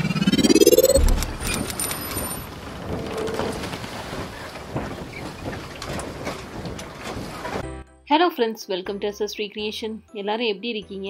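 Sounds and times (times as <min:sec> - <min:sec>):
low boom: 0:00.0 - 0:01.8
rising whoosh: 0:00.0 - 0:02.5.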